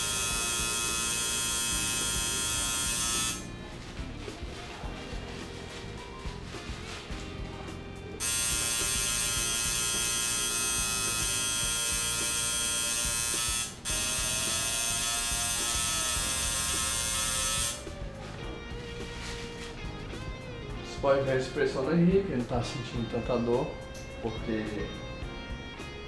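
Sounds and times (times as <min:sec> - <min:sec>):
tattoo machine buzzing: 0:00.0 - 0:03.8, 0:07.5 - 0:18.3.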